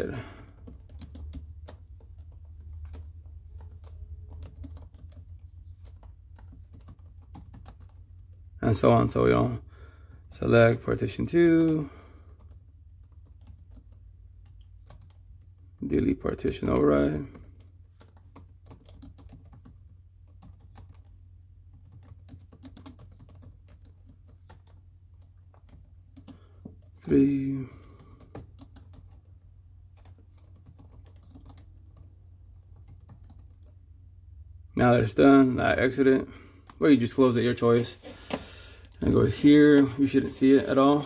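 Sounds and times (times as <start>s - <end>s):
computer keyboard typing: 0.0s - 8.6s, 10.4s - 33.8s
steady low hum: 0.0s - 41.0s.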